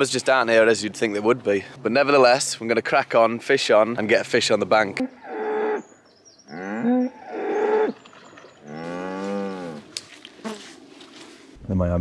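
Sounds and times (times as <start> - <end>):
cows mooing: 5.0 - 5.9, 6.5 - 9.9.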